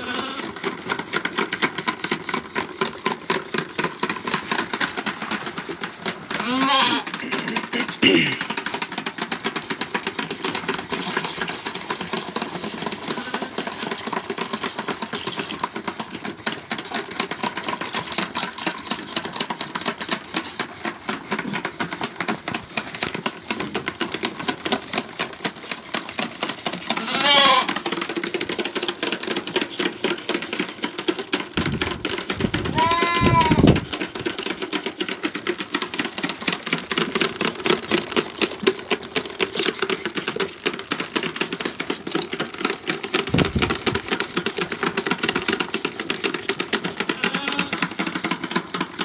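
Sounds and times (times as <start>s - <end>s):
lamb bleating: 0.0s - 0.5s, 6.4s - 7.0s, 27.0s - 27.7s, 32.7s - 33.8s, 47.2s - 47.8s
lambs sucking on bucket teats: 0.0s - 49.0s.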